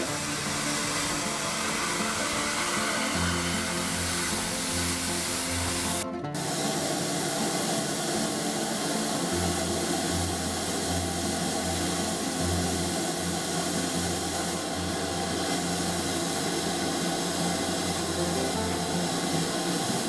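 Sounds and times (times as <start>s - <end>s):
low uneven pulsing: 0.0s - 20.0s
steam locomotive hissing: 0.0s - 20.0s.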